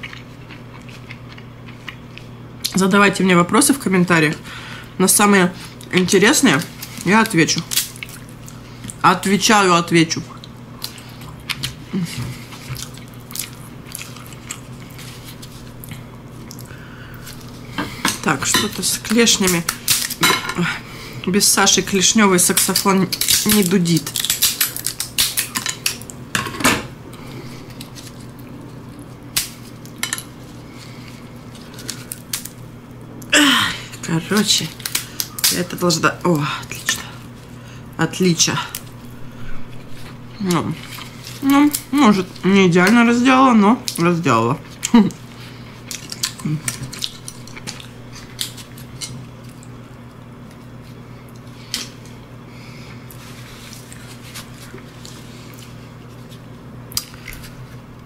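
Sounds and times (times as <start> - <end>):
steady low hum: 0.0 - 58.0
crab shell clicking and crackling: 22.5 - 26.2, 34.4 - 35.7.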